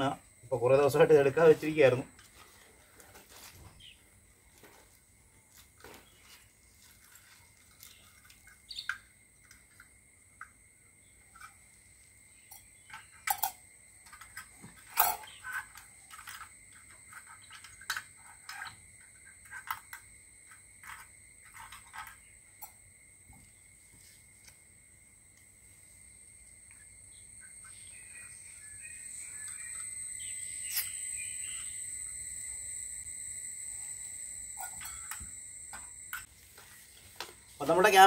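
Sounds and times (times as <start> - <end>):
high-pitched insect drone: 6.2 - 38.0
bird chirps: 7.8 - 9.1, 26.8 - 32.6
camping stove metal clicks and knocks: 12.5 - 18.8.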